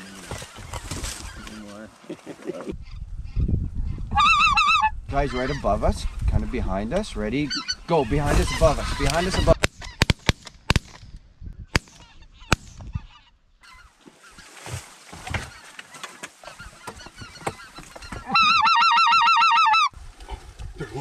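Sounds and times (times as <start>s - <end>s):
geese calling overhead: 0.0s - 6.2s, 7.4s - 10.0s, 11.8s - 20.0s
goose call wavering notes: 18.2s - 20.0s.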